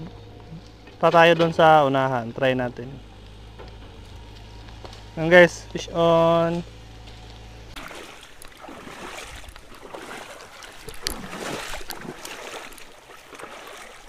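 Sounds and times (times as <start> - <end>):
water splashing in shallow water: 4.2 - 14.0.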